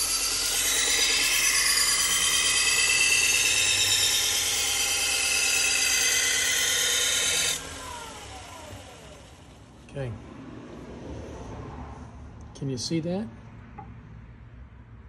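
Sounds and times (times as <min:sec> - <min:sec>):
belt sharpener grinding knife: 0:00.0 - 0:09.3.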